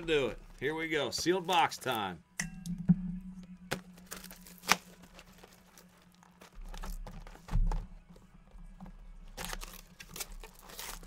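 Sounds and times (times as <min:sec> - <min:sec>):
plastic wrap tearing and crinkling: 0:03.8 - 0:07.5, 0:09.3 - 0:11.0.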